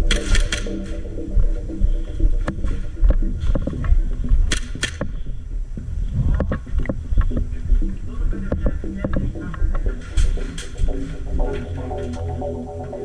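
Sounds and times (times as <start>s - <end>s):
sharp cracks: 0.0s - 1.0s, 4.4s - 5.3s
footsteps: 0.0s - 13.0s.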